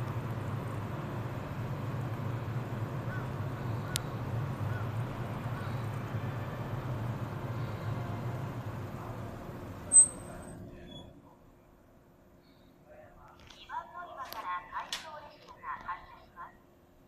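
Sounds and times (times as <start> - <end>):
electric train low hum: 0.0 - 17.0
faint bird calls: 3.0 - 6.0.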